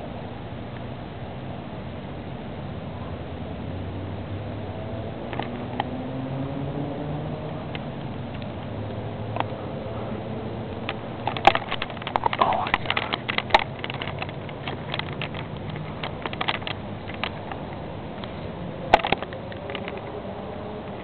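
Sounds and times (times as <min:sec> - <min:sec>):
camera handling clicks and rustles: 0:10.8 - 0:20.1.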